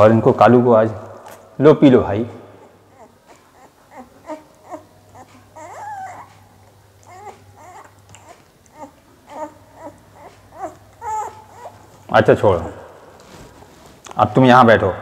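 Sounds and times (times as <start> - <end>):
puppies whimpering: 2.6 - 11.9.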